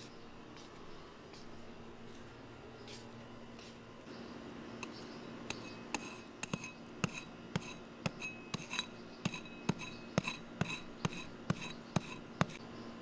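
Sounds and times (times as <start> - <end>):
metal hoe striking hard soil: 5.5 - 12.6.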